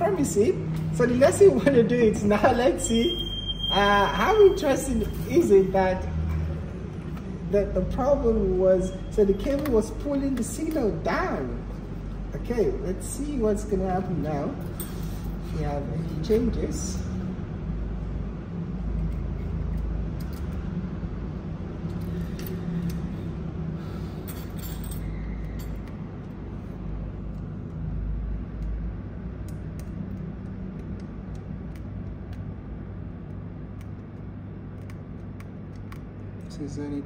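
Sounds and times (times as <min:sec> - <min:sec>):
low background hum: 0:00.0 - 0:37.0
small tools clicking and clinking: 0:19.1 - 0:20.6, 0:24.2 - 0:26.4.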